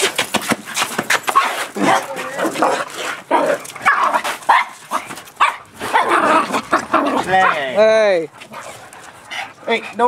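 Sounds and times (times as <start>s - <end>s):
dogs barking: 1.3s - 7.8s.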